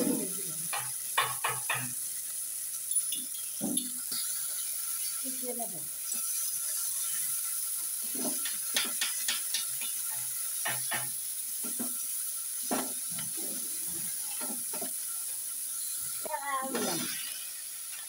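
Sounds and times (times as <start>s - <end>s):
onions sizzling in oil: 0.0s - 18.0s
wooden spatula scraping a pan: 8.0s - 11.0s.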